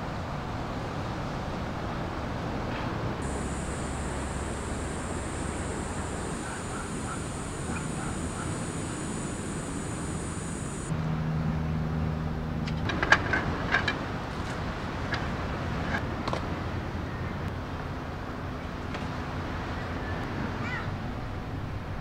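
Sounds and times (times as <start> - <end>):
low hum: 3.2 - 10.9
steady high buzz: 3.2 - 10.9.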